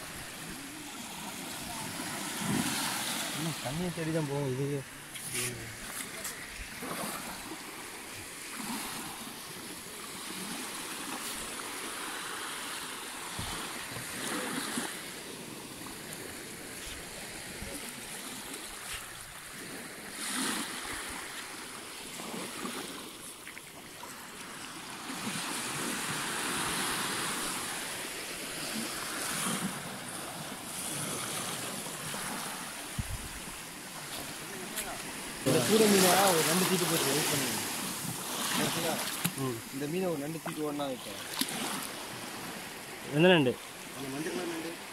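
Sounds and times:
small surf washing over sand: 0.0s - 44.9s.

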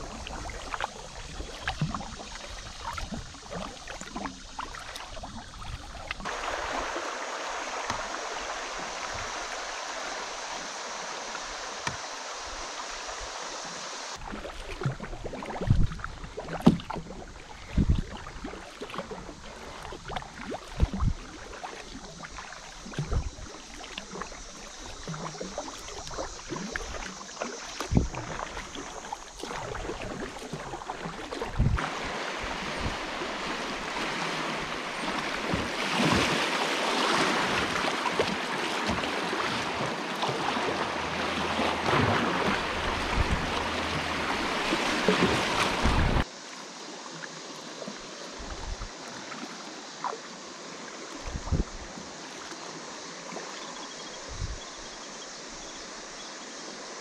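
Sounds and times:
water rushing through riffle: 0.0s - 46.3s
paddle splashes: 0.0s - 57.0s.

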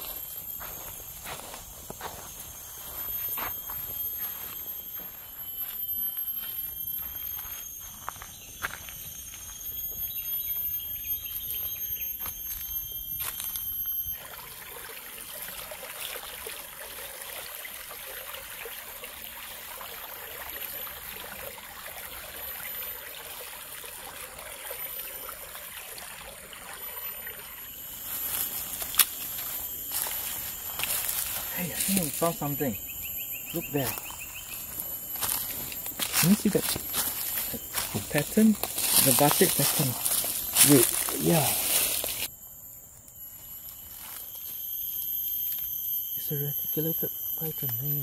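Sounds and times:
insects shrilling: 0.0s - 48.0s
small stream trickling: 14.0s - 42.3s
footsteps on rock and leaves: 27.9s - 32.5s, 33.6s - 42.3s
footsteps crunching dry leaves: 27.9s - 32.7s, 33.6s - 42.3s.

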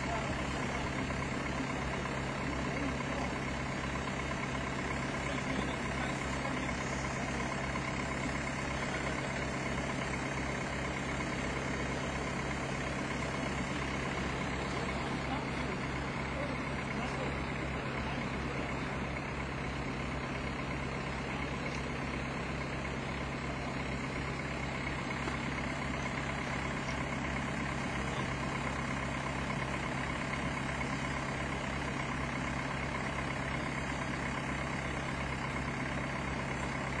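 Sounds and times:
heavy vehicle engine idling: 0.0s - 37.0s.

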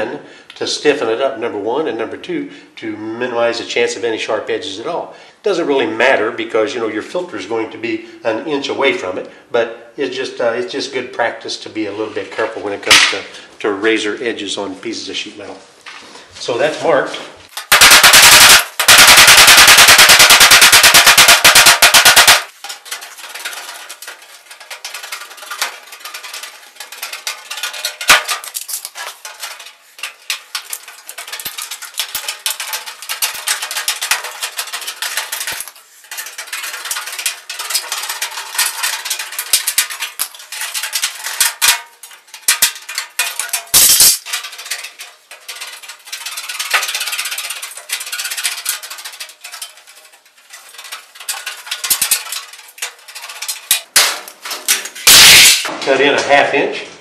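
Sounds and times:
sharp metal knocks: 17.6s - 22.9s, 53.7s - 55.8s
snips cutting sheet metal: 43.6s - 44.3s, 54.0s - 55.7s.

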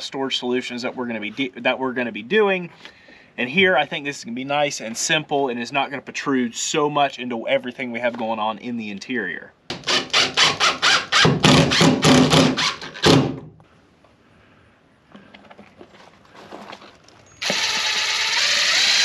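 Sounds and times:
power drill running: 17.4s - 19.0s.

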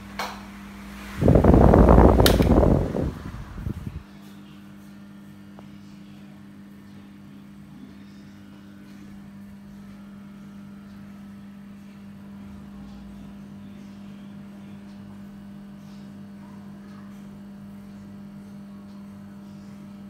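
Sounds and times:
rush of air from fan: 0.0s - 4.2s
fan motor humming: 0.0s - 20.0s.

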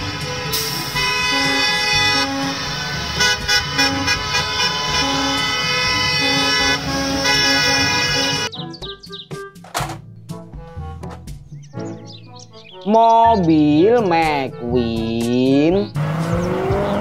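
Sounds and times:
bus horns honking: 0.0s - 8.6s.

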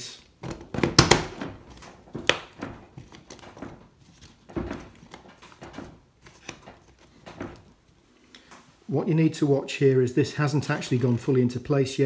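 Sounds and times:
plastic rubbing and handling: 0.2s - 8.8s, 10.5s - 11.6s
dull plastic thump: 0.4s - 7.7s.

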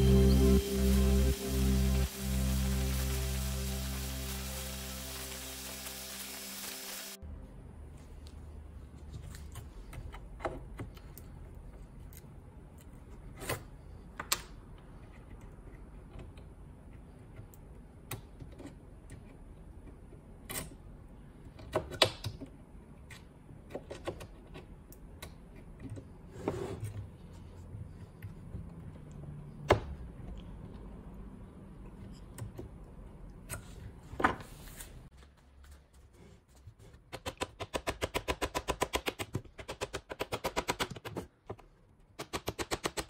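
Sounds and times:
low steady hum: 0.0s - 21.6s.

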